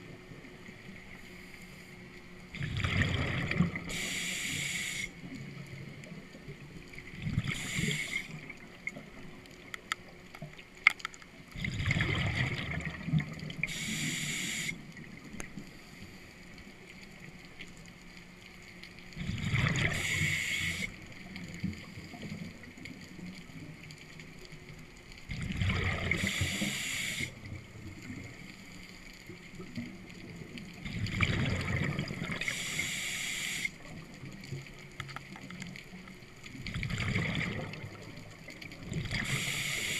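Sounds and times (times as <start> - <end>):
exhaled air bubbling underwater: 2.3 - 39.9
regulator breath hiss: 3.9 - 5.2, 7.5 - 8.4, 13.6 - 14.8, 20.0 - 20.9, 26.1 - 27.4, 32.4 - 33.8, 39.2 - 39.9.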